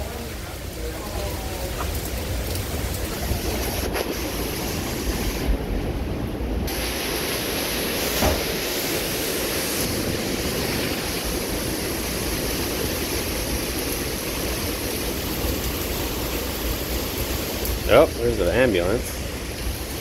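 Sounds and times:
heavy rain: 0:00.0 - 0:20.0
strong wind blowing: 0:00.0 - 0:20.0
wind rumble on microphone: 0:00.6 - 0:06.8.

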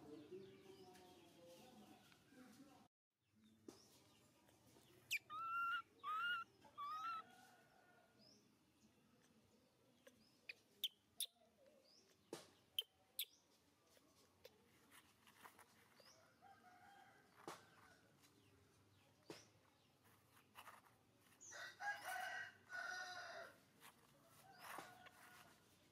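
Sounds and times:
baby monkey calling: 0:05.0 - 0:07.2.

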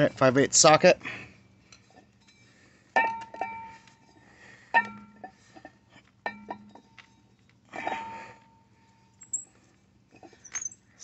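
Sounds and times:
sharp metal clinks: 0:09.2 - 0:09.5, 0:10.4 - 0:10.8.

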